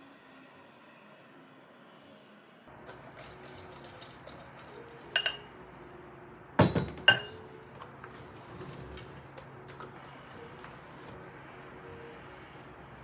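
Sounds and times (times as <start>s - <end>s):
glass bowl clinking: 3.8s - 5.5s, 6.6s - 7.5s.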